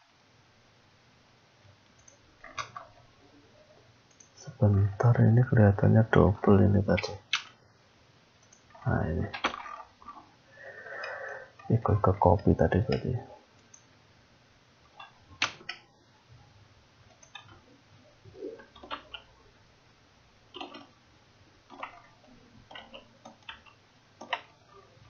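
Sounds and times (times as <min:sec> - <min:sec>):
room hum: 0:00.0 - 0:25.0
mouse clicks: 0:01.8 - 0:02.9, 0:04.1 - 0:04.4, 0:08.4 - 0:08.7, 0:12.9 - 0:13.9, 0:17.1 - 0:17.6
keyboard key presses: 0:15.0 - 0:15.8, 0:18.6 - 0:19.3, 0:20.5 - 0:20.9, 0:21.7 - 0:24.6.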